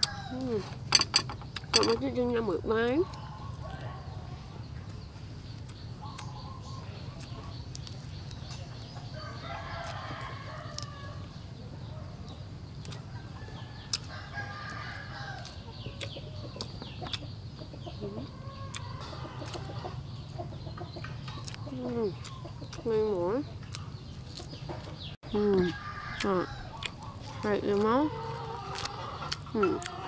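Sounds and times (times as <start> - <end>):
chickens clucking: 15.4 - 30.0.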